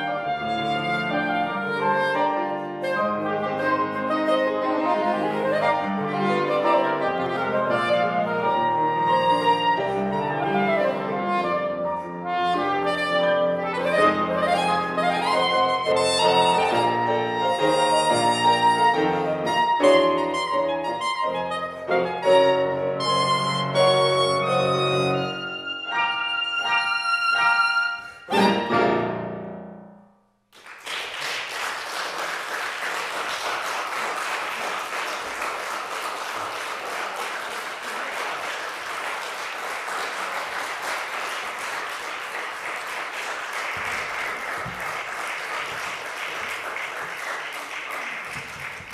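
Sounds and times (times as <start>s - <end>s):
soprano saxophone: 0.0s - 28.8s
piano: 0.0s - 48.9s
audience applause: 30.6s - 48.9s.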